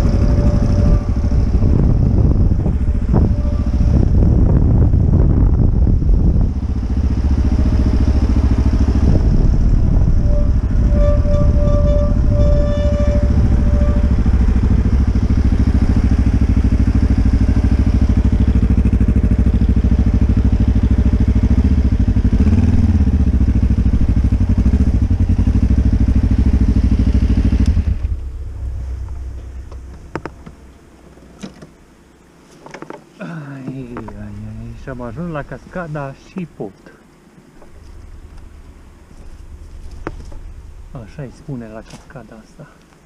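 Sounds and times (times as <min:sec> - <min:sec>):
motorcycle engine running: 0:00.0 - 0:30.7, 0:37.6 - 0:41.2.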